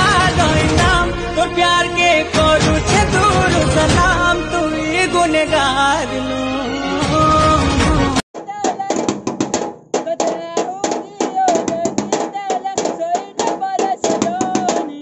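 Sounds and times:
rapid drumming with sticks: 8.3s - 15.0s.

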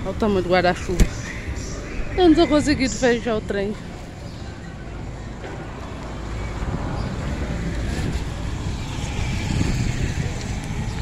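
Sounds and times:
street traffic rumbling: 0.0s - 11.0s
wind on microphone: 6.2s - 11.0s.

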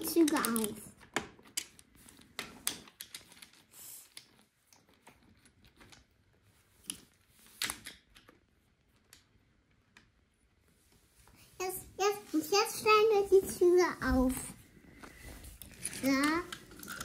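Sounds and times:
wooden toy pieces clicking: 0.0s - 9.4s, 15.6s - 17.0s.

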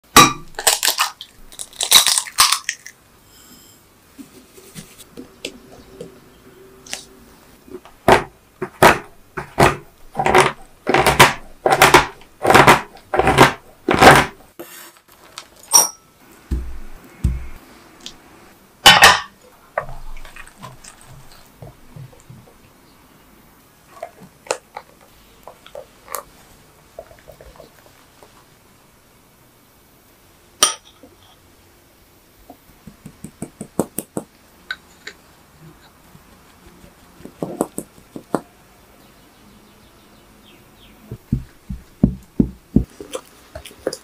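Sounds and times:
knife chopping chocolate: 8.0s - 14.4s.

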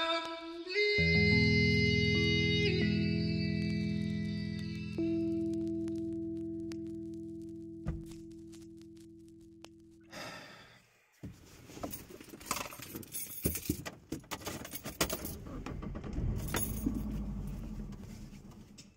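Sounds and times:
keys jingling and rattling: 11.8s - 15.5s.

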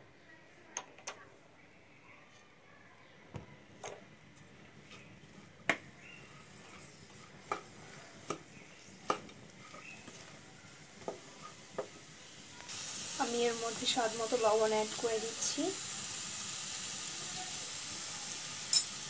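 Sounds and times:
spatula stirring vegetables in pan: 4.3s - 19.0s.

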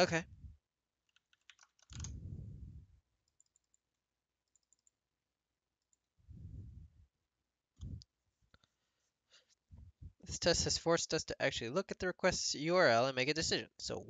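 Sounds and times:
computer mouse clicks: 1.1s - 2.2s, 3.2s - 5.0s
breath puffs on microphone: 2.1s - 3.0s, 6.3s - 7.0s.

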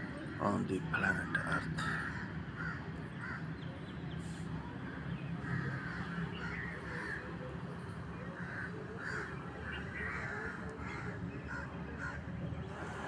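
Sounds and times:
crows cawing: 1.6s - 3.5s, 5.4s - 7.3s, 8.4s - 12.2s.

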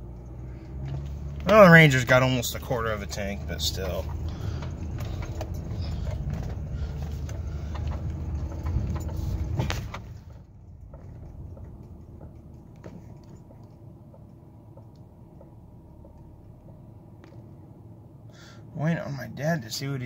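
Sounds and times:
car engine and road noise: 0.0s - 20.0s
knocks and clicks: 3.8s - 17.4s.

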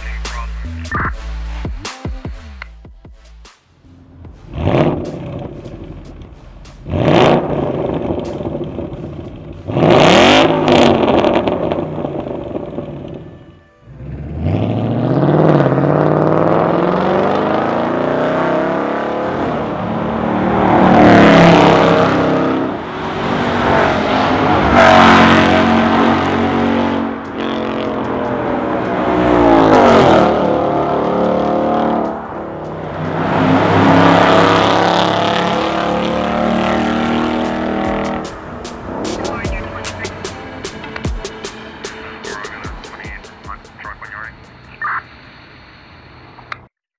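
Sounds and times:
car engine revving and accelerating: 3.8s - 43.1s.

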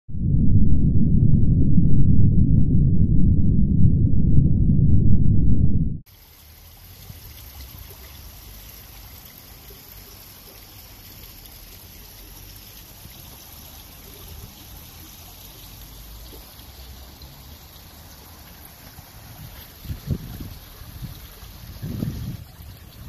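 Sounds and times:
loud low rumble: 0.1s - 6.0s
water trickling over stones: 6.1s - 23.0s.

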